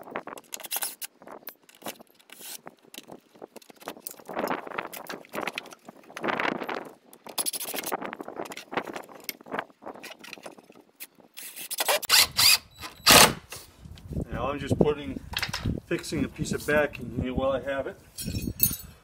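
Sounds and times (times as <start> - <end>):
metal hardware scraping and clicking: 0.3 - 6.3, 7.2 - 13.6.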